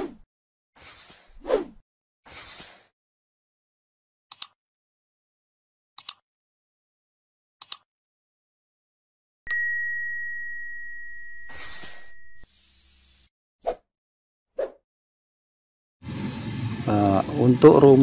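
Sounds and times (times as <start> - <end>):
brief swish: 0.8 - 2.9, 11.5 - 12.2
computer mouse double clicks: 4.3 - 4.6, 6.0 - 6.2, 7.6 - 7.8
bright bell ding: 9.5 - 12.4.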